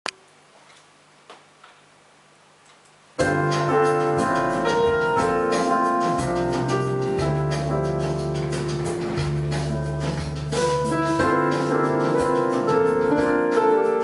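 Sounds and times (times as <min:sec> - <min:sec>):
piano melody over bass notes: 0:03.2 - 0:14.0.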